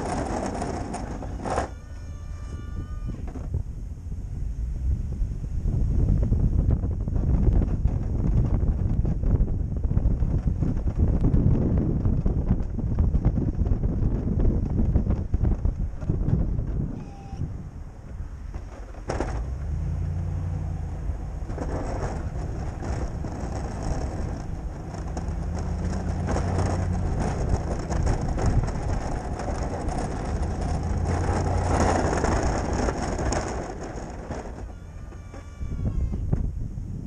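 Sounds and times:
plow blade scraping snow: 0.0 - 2.0, 18.2 - 34.7
truck engine running: 17.5 - 35.0.

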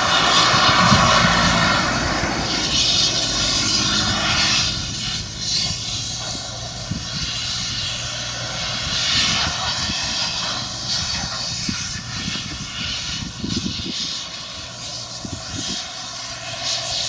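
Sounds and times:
farm machine engine running: 0.0 - 12.6.

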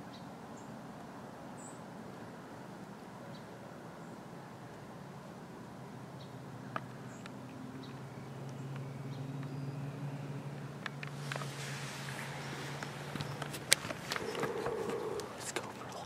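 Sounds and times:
camera handling rustle: 11.0 - 15.3
faint clicks: 12.1 - 16.0.

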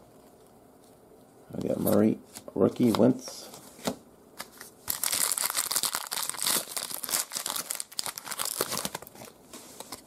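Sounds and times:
foil wrapper crinkling and tearing: 4.8 - 10.0.

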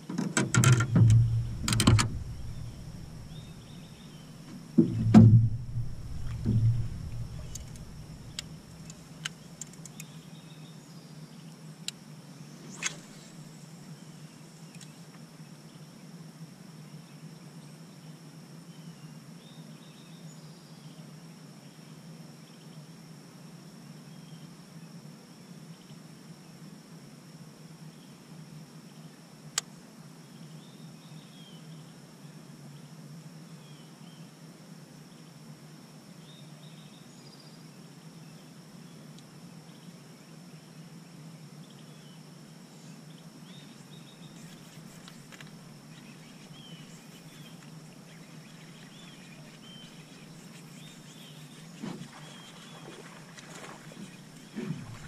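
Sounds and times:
low steady hum: 0.0 - 16.0, 28.8 - 55.0
high insect drone: 0.0 - 55.0
soft knocks: 0.1 - 3.6, 4.5 - 8.4
sharp click: 0.1 - 3.8, 4.8 - 10.1
faint bird chirps: 0.8 - 11.5, 41.6 - 55.0.

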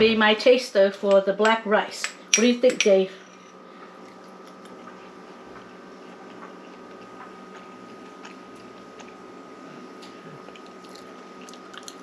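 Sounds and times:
background hum with high whine: 0.0 - 12.0
man chewing rice: 4.0 - 12.0.

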